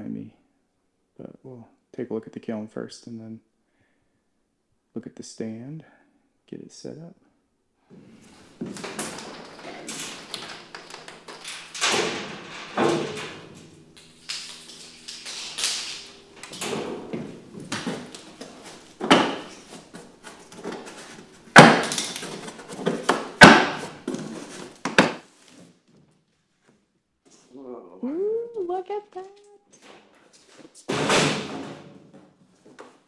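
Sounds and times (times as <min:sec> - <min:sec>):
sharp knocks: 0:21.5 - 0:24.1.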